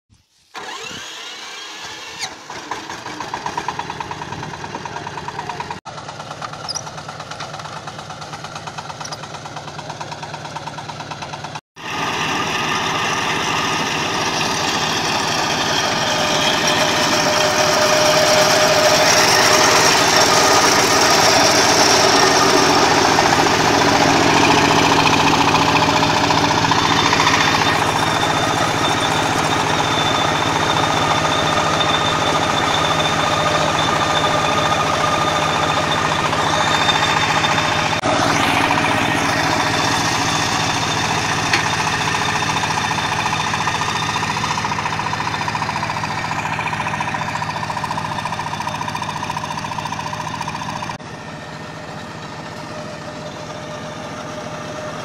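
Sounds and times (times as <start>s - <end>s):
farm machinery engine drone: 0.6s - 55.0s.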